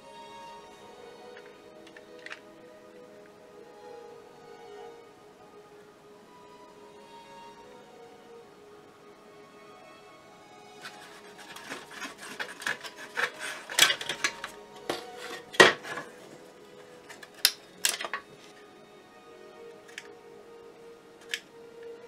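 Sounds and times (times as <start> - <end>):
faint background music: 0.0 - 22.0
plastic parts clicking and scraping: 1.4 - 2.4, 10.8 - 18.6, 21.2 - 21.4.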